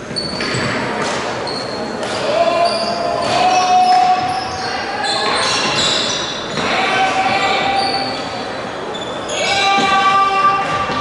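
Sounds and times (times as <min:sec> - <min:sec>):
shoes squeaking on gym floor: 0:00.0 - 0:06.8, 0:08.9 - 0:09.8
sports hall noise: 0:00.0 - 0:11.0.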